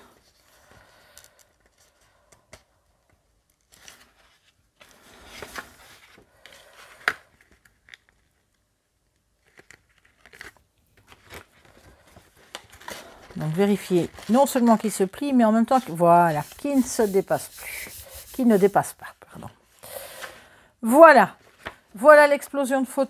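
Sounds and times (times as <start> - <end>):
paper and card rustling: 3.5 - 8.5, 9.4 - 19.1, 21.4 - 22.7.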